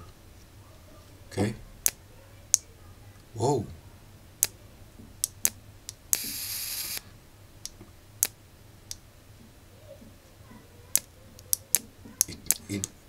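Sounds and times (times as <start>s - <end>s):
sharp clicks: 1.8s - 2.7s, 4.4s - 4.6s, 5.2s - 9.0s, 10.9s - 13.0s
plasma lighter crackling and buzzing: 5.2s - 9.0s.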